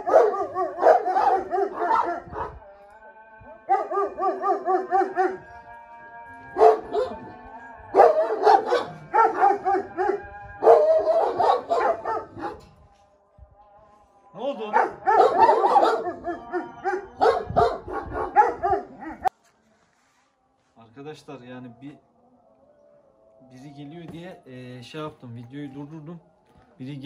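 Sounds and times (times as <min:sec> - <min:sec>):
dogs barking: 0:00.0 - 0:02.6, 0:03.7 - 0:05.6, 0:06.5 - 0:07.3, 0:07.9 - 0:12.7, 0:14.7 - 0:19.3.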